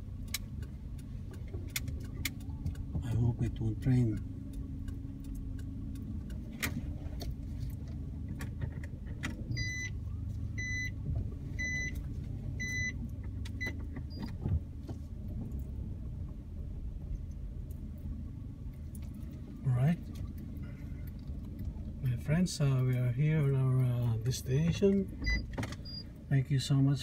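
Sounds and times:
car engine low rumble: 0:00.0 - 0:27.0
high beeps: 0:09.6 - 0:09.9, 0:10.6 - 0:10.9, 0:12.6 - 0:13.0.

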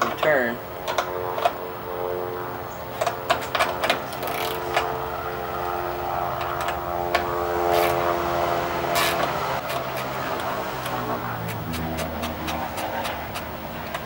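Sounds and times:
motor drone: 0:00.6 - 0:14.0
wrench clicking and scraping: 0:03.0 - 0:04.8, 0:09.0 - 0:14.0.

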